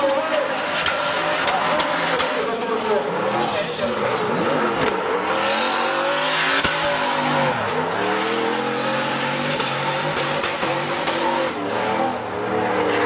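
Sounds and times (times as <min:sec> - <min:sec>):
car engine revving high: 0:03.0 - 0:13.0.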